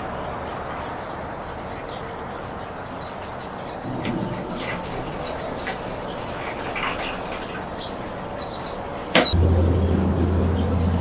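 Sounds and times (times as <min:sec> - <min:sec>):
strong wind rushing: 0:03.8 - 0:08.9
faint high bird chirps: 0:03.8 - 0:09.4.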